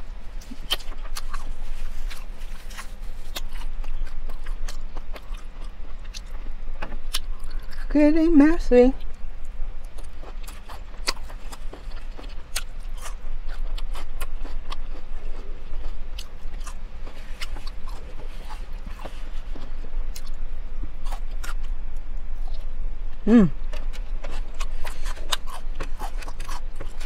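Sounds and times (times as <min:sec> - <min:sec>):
steady low hum: 0:00.0 - 0:27.0
person chewing lettuce: 0:00.2 - 0:07.9, 0:09.0 - 0:27.0
crisp crunches: 0:00.4 - 0:05.5
mouth noises: 0:23.2 - 0:23.8.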